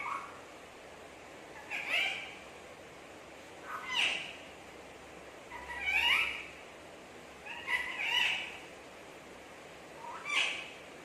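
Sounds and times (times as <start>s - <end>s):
parrot calling: 0.0s - 0.5s, 1.5s - 2.5s, 3.6s - 4.6s, 5.4s - 6.6s, 7.4s - 8.7s, 10.0s - 10.9s.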